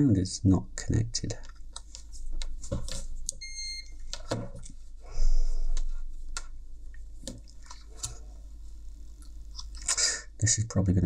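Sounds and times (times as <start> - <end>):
multimeter beep: 3.4 - 4.0.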